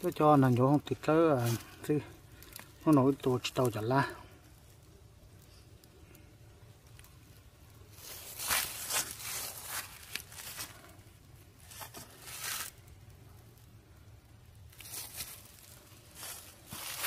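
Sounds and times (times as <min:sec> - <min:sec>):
dry leaves crunching underfoot: 0:07.9 - 0:13.0, 0:14.7 - 0:17.0.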